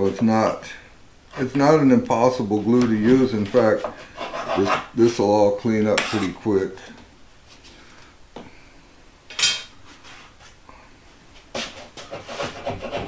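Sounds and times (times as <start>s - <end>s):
metal scraper scraping glue off wood: 6.0s - 6.3s.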